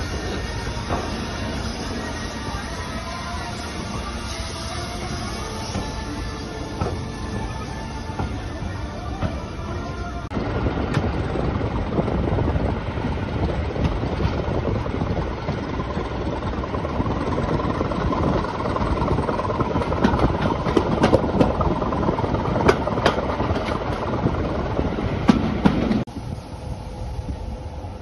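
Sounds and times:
train carriage rumble: 0.0 - 28.0
wheel clicks over rail joints: 18.2 - 24.2.

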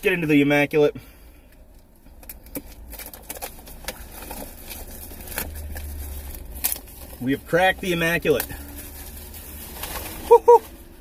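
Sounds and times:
shrink wrap tearing and crinkling: 2.2 - 10.9.

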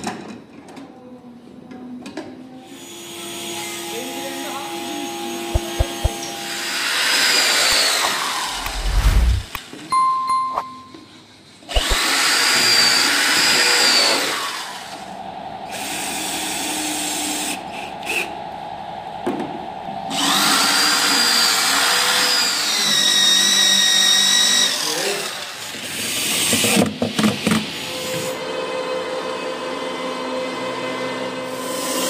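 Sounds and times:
electric drill whining: 5.6 - 9.6, 11.7 - 15.0, 20.1 - 26.6.

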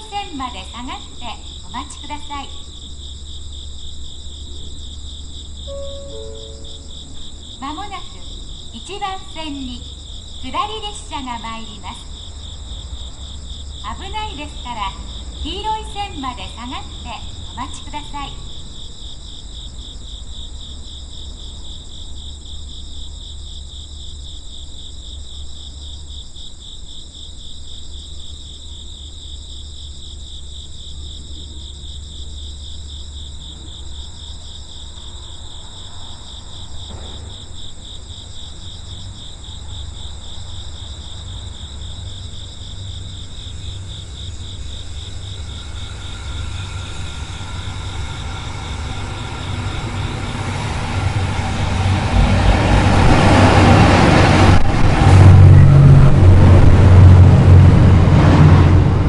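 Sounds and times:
insects chirping in a trill: 0.0 - 56.9
train rumbling: 0.0 - 59.0.

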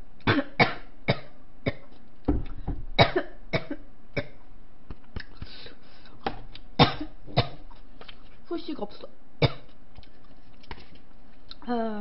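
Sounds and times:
woman coughing: 0.3 - 1.8, 3.0 - 4.4, 6.8 - 7.6
woman clearing throat: 3.0 - 4.4.

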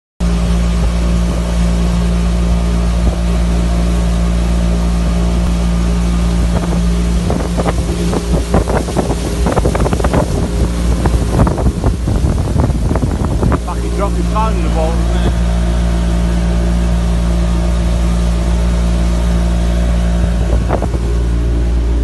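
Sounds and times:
motorboat engine running: 0.2 - 22.0
water rushing: 0.2 - 22.0
wind buffeting microphone: 0.2 - 22.0.

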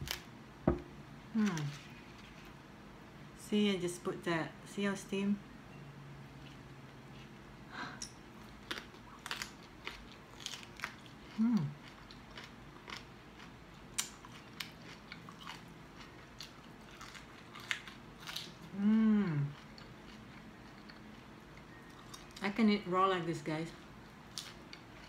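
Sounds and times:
crunchy chewing of leaves: 8.4 - 22.6, 23.8 - 25.0
closed-mouth hum: 18.6 - 19.6.

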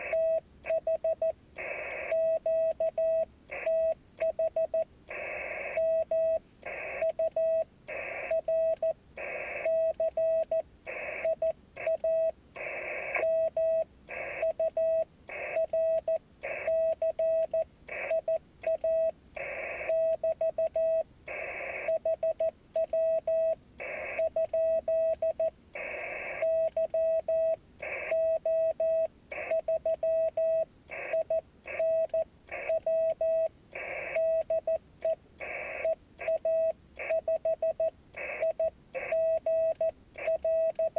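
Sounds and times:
morse code tone: 0.0 - 40.9.

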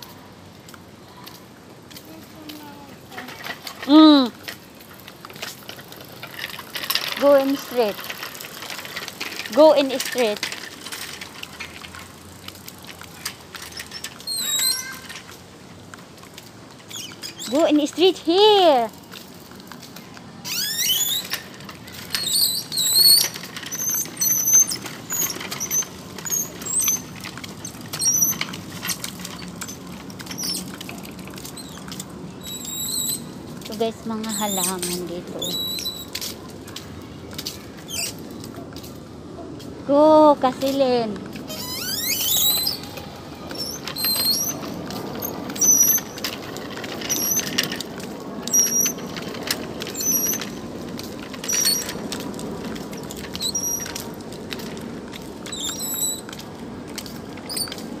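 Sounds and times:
wheels rolling on brick: 0.0 - 58.0
bike wheel squeak: 13.5 - 15.2, 16.9 - 17.7, 20.4 - 33.4, 34.2 - 36.3, 37.8 - 38.4, 41.4 - 47.8, 48.4 - 52.1, 52.7 - 54.1, 55.4 - 56.4, 57.1 - 57.9.

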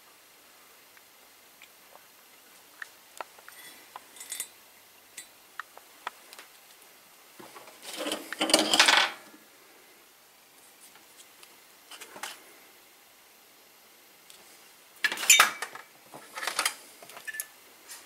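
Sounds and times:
metal objects clattering: 7.8 - 9.2, 15.1 - 17.5.

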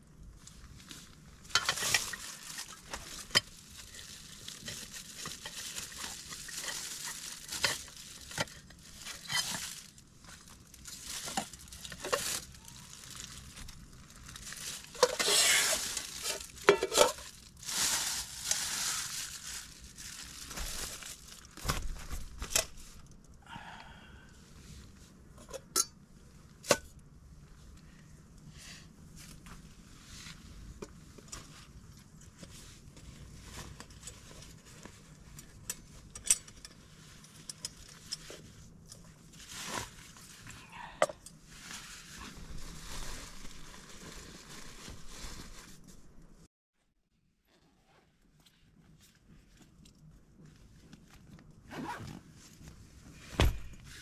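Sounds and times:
rustling: 0.4 - 23.3, 29.1 - 40.6, 41.3 - 46.5.

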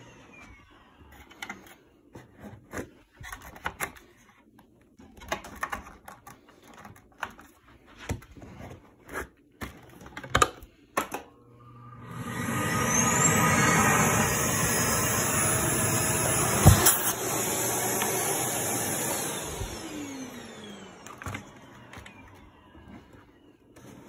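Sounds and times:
vacuum cleaner whine winding down: 0.0 - 1.1, 11.4 - 24.0.

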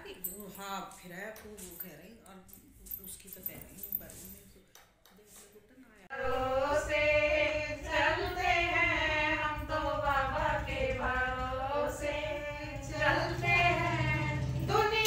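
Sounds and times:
steady low hum: 6.1 - 15.0.

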